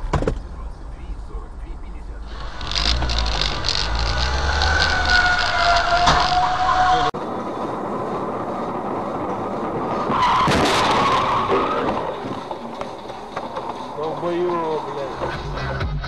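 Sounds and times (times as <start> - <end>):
road noise inside car: 0.0 - 16.0
car crash screeching and collision: 2.3 - 7.1, 9.9 - 14.0.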